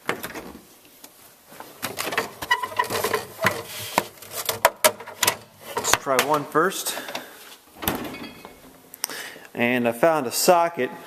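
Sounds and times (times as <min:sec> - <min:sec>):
hand rummaging in freezer: 0:01.7 - 0:06.4
clicks knocks and squeaks: 0:02.0 - 0:03.7.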